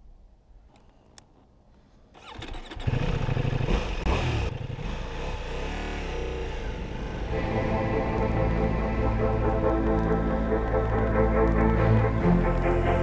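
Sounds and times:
motorcycle engine running: 2.8s - 10.1s.

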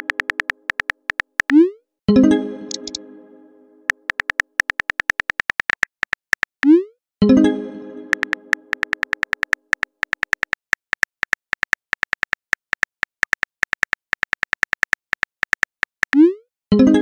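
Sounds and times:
phone keyboard clicks: 0.0s - 1.6s, 2.7s - 3.0s, 3.9s - 6.7s, 8.1s - 16.2s.

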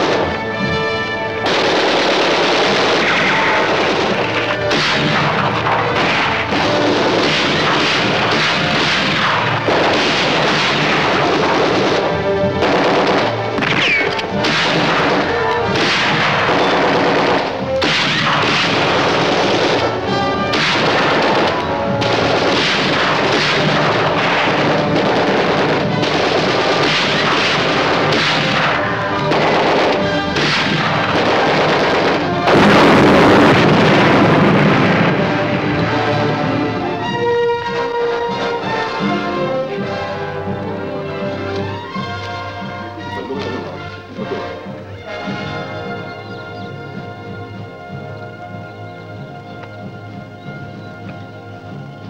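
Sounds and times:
machine-gun fire and gunshots: 0.0s - 36.5s
dramatic music score: 0.0s - 52.0s.

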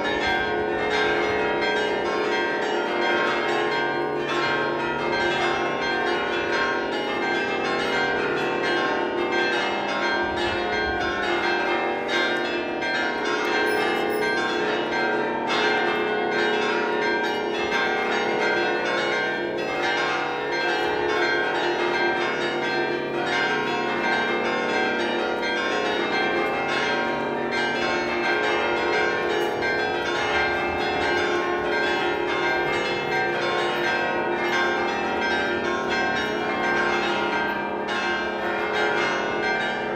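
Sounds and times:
church bells ringing a peal: 0.0s - 39.9s.

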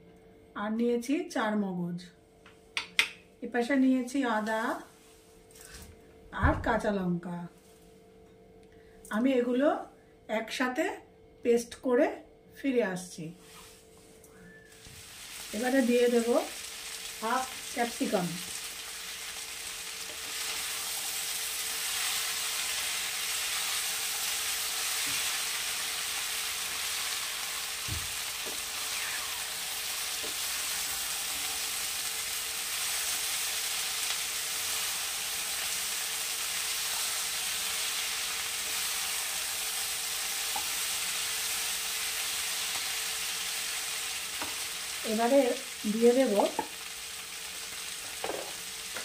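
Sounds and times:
vegetables sizzling in oil: 14.7s - 49.0s.

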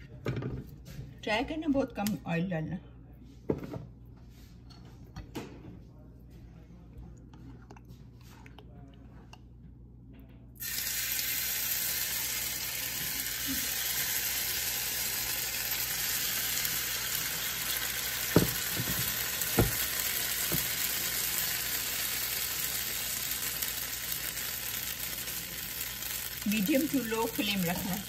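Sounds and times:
batter sizzling in hot oil: 10.6s - 28.0s.

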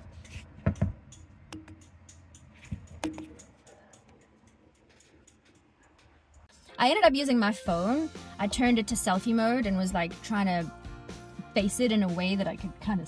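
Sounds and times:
sharp clicks and knocks on metal: 0.6s - 6.2s.

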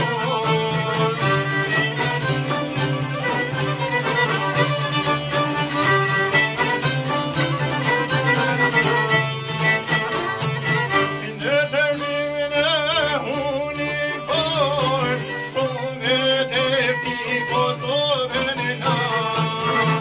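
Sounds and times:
jingling frame drum beat: 0.0s - 11.2s
accordion: 0.0s - 20.0s
long-necked lutes: 0.0s - 20.0s
violin: 0.0s - 20.0s.

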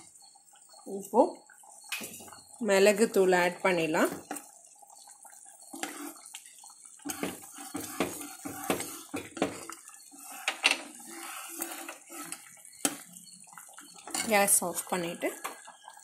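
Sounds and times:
soup sloshing: 5.6s - 15.6s.

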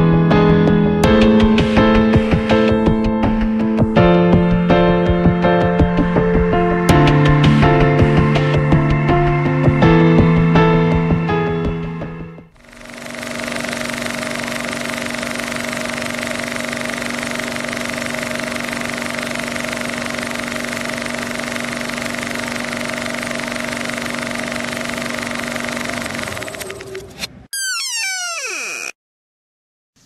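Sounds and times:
film projector whirring and clattering: 1.2s - 3.0s, 12.6s - 27.4s.

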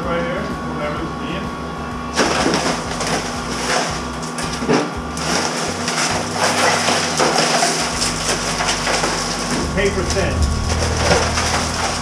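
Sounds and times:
sheet-metal pipe crunching and rattling: 2.2s - 12.0s.

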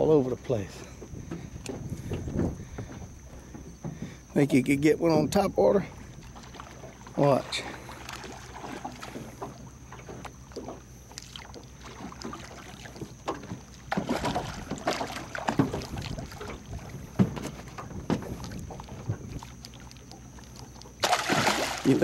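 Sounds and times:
water slapping beside boat: 0.0s - 22.0s
wind on microphone: 1.0s - 3.4s, 15.6s - 19.4s
fish splashing at surface: 19.4s - 22.0s.

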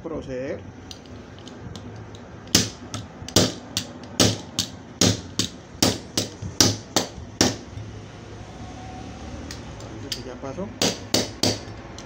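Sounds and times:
hammer striking steel punch: 2.5s - 7.7s, 10.1s - 11.8s.

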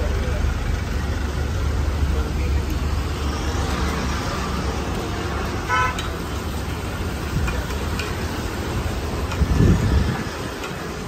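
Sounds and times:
street traffic rumble: 0.0s - 11.0s
egg sizzling on a griddle: 4.2s - 11.0s
vehicle horn toot: 5.7s - 6.1s
spatula tapping a griddle: 7.4s - 8.4s.

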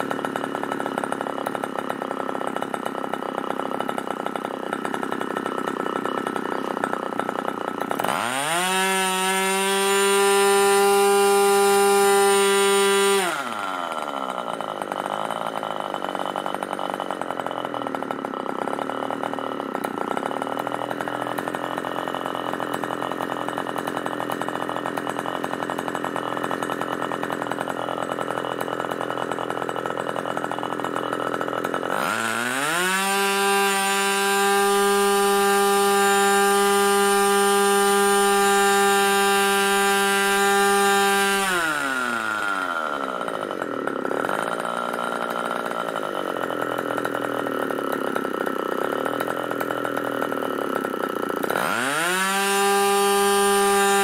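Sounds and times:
model engine idling: 0.0s - 8.5s, 10.0s - 32.6s, 34.2s - 51.8s
model engine revving: 0.0s - 54.0s.

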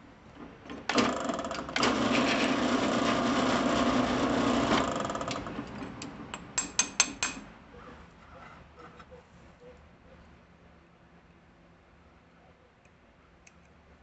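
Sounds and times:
drill press drilling metal: 0.9s - 5.3s.

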